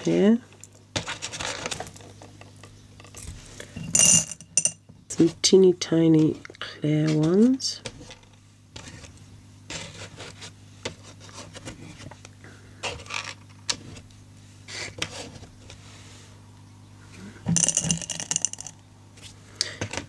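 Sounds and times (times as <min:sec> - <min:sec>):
beads rattling into a glass jar: 0:03.8 - 0:04.8, 0:17.5 - 0:18.8.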